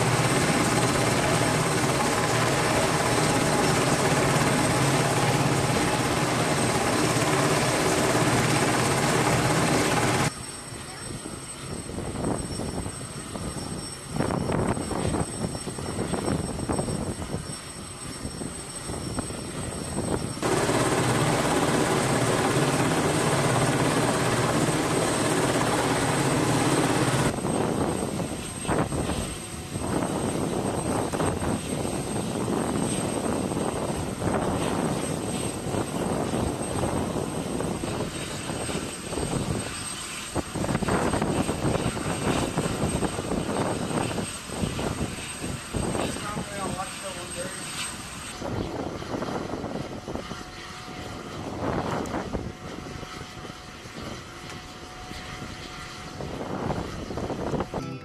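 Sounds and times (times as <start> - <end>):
louder steady engine sound: 0.0 - 11.1, 20.2 - 28.0, 45.8 - 48.8
aircraft engines running: 0.0 - 58.0.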